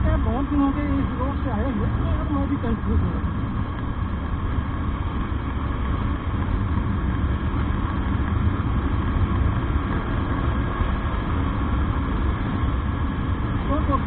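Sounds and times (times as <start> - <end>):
motorcycle engine running: 0.0 - 14.0
wind rush on microphone: 0.0 - 14.0.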